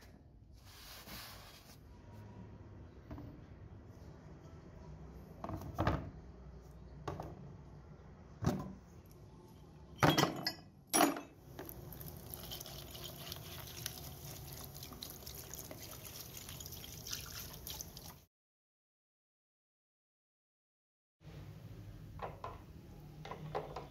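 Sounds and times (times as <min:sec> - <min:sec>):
liquid pouring and splashing: 0:11.6 - 0:18.3.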